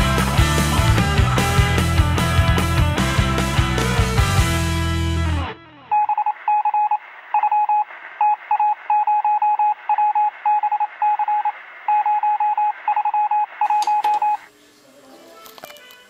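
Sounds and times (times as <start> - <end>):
rock music final chord: 0.0 - 5.7.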